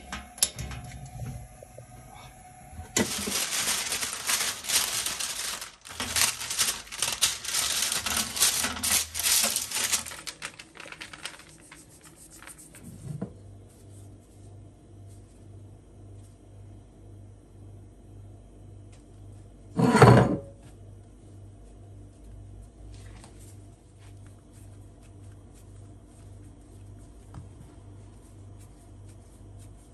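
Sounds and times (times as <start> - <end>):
baking parchment crinkling: 2.9 - 13.0, 21.2 - 29.9
paper ticking against metal tray: 3.0 - 12.8.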